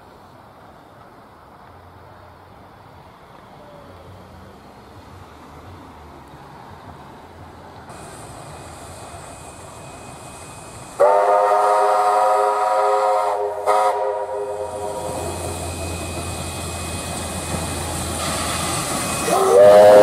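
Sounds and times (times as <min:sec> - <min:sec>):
steam locomotive whistle: 0:09.6 - 0:16.8, 0:18.2 - 0:20.0.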